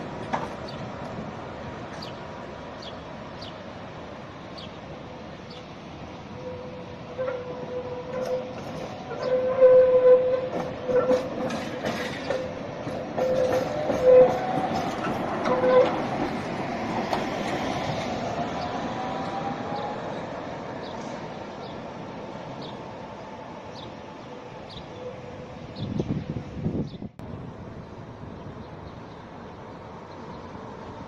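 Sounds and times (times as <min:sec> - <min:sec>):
tram wheels clicking over rail joints: 0:00.0 - 0:02.3, 0:07.1 - 0:22.9.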